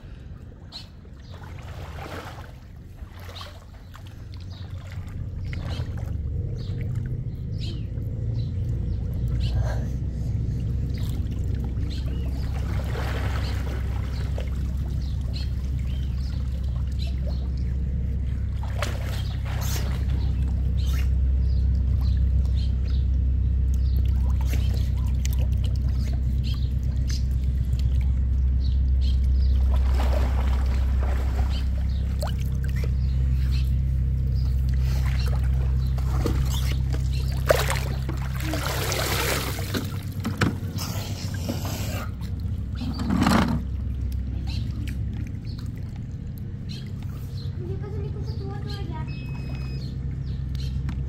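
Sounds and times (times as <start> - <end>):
knocks and splashes: 1.2 - 7.5, 10.8 - 23.0, 23.7 - 28.6, 29.2 - 33.3, 34.0 - 47.2
muffled underwater rumble: 3.8 - 51.0.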